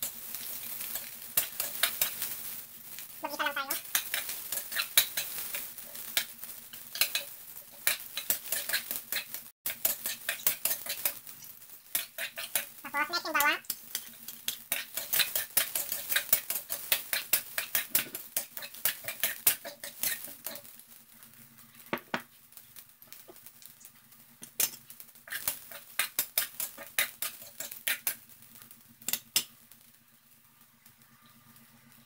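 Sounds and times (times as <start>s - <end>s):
metal spatula scraping wok: 0.4s - 2.6s, 3.2s - 20.7s, 25.3s - 28.2s.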